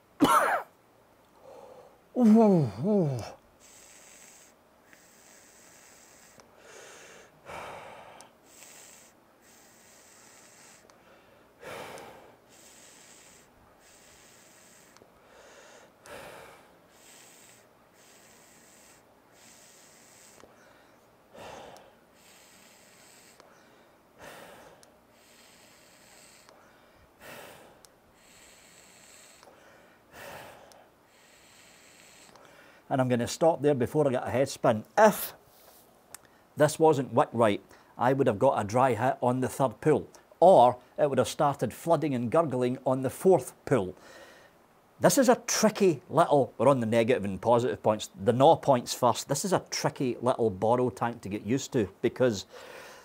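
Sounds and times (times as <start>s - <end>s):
person vaping: 1.4s - 32.7s.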